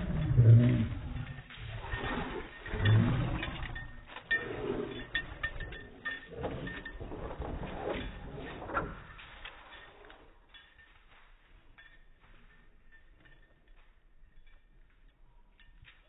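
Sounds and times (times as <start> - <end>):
dog low vocal sound: 0.0 - 9.1.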